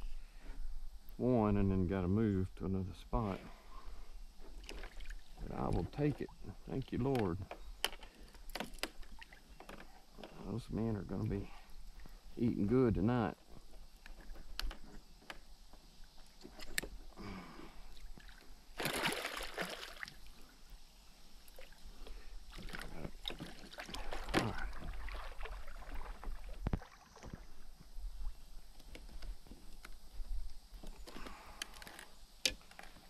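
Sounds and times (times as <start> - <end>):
fishing gear knocks and clicks: 6.8 - 10.5, 14.0 - 15.4, 30.8 - 33.0
water splashing beside hull: 18.0 - 20.2, 21.5 - 27.6.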